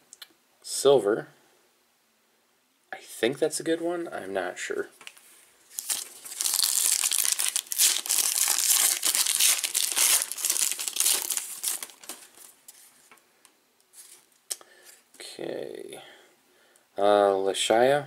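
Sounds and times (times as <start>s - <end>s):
foil wrapper tearing and crinkling: 5.7s - 12.6s.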